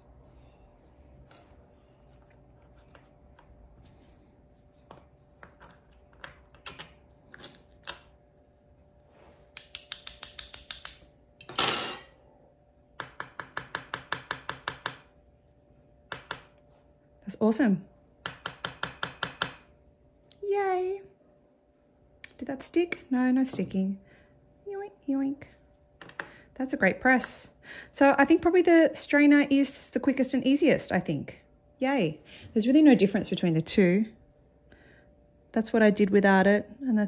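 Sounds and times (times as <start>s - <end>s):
scrape: 9.0s - 9.5s.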